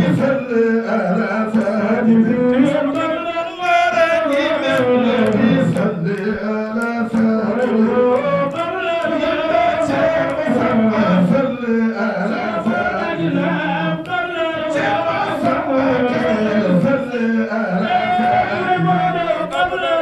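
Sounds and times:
man chanting into a microphone: 0.0 - 20.0.

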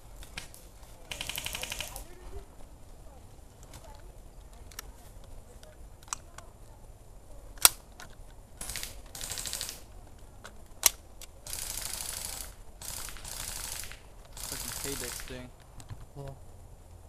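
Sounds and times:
airsoft rifle shots: 1.1 - 2.1, 8.6 - 9.9, 10.8 - 15.5
rapid clicking rattle: 11.5 - 15.5.

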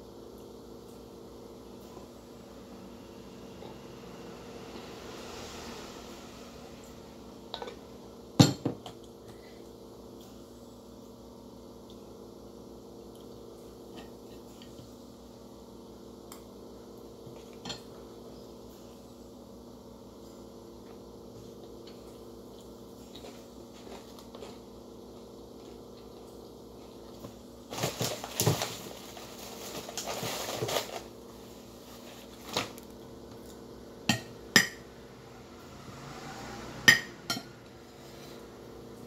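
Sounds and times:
plastic bag rustling: 27.7 - 33.0.

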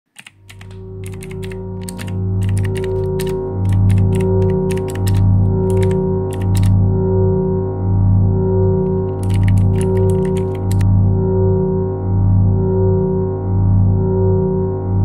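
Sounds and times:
computer keyboard typing: 0.1 - 6.8, 8.7 - 10.8
low drone music with held tones: 0.4 - 15.0.

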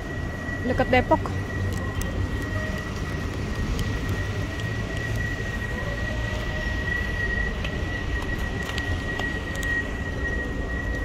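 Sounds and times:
high-pitched whine: 0.0 - 11.0
low urban rumble: 0.0 - 11.0.

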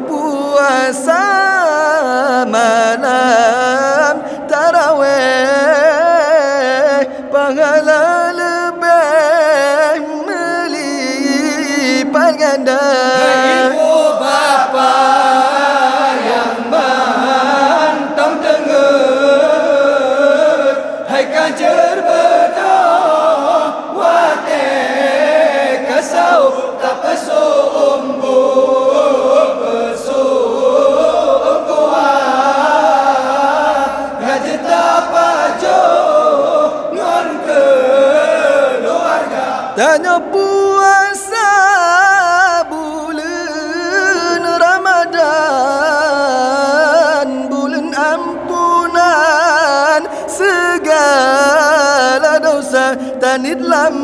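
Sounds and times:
man singing ornamented melody: 0.0 - 30.8, 39.7 - 54.0
group of men chanting: 11.2 - 41.3.

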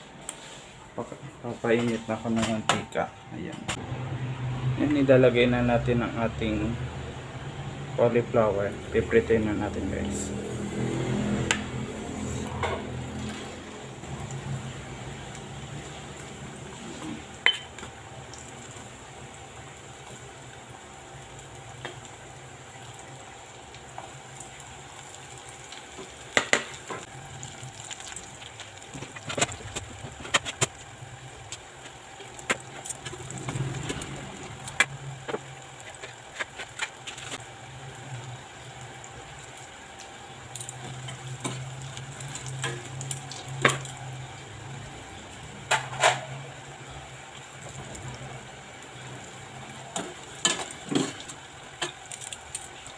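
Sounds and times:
food sizzling in hot oil: 3.8 - 52.9
metal tongs clinking on pot: 17.4 - 17.8.

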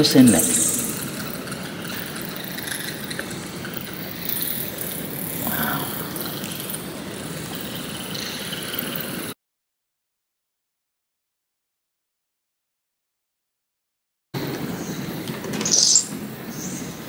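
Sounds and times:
bats hissing in a cave: 0.0 - 9.4.

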